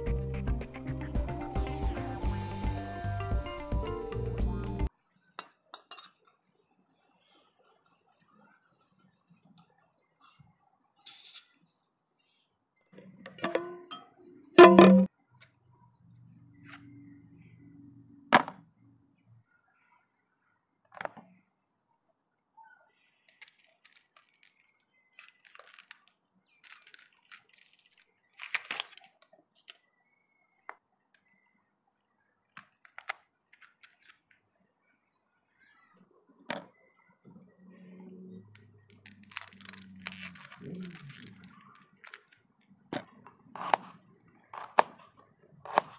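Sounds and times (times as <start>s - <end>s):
onion skin crackling: 23.3s - 29.8s, 31.1s - 34.5s, 38.5s - 42.6s.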